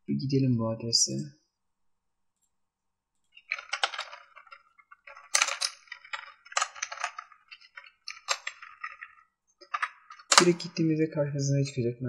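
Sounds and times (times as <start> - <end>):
computer keyboard typing: 3.3 - 10.8.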